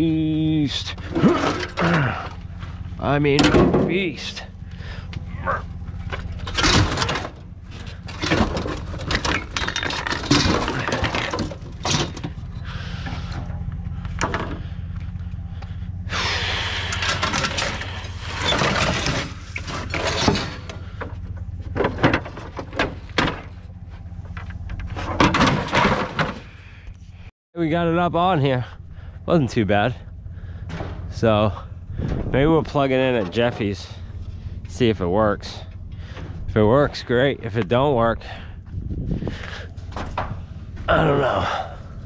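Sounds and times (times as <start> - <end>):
low hum: 0.0 - 42.0
metal grinding and dragging: 0.7 - 3.4, 4.2 - 14.8, 15.8 - 26.5
heavy metal clanking and banging: 0.7 - 15.8, 16.5 - 26.6, 29.9 - 42.0.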